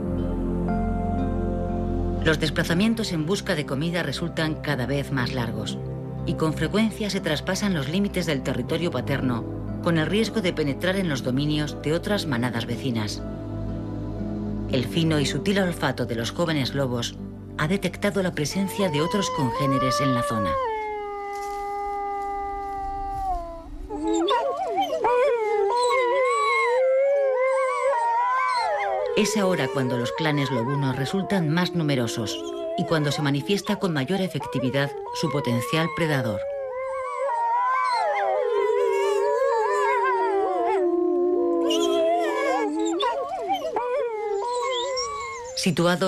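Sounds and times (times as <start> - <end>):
wolves howling: 18.5 - 46.0.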